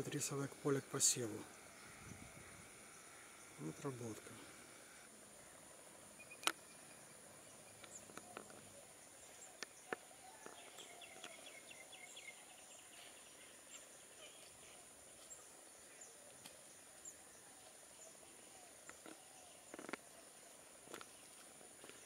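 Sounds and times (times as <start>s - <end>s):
insects chirring: 0.0s - 22.0s
sharp clicks: 6.4s - 6.6s.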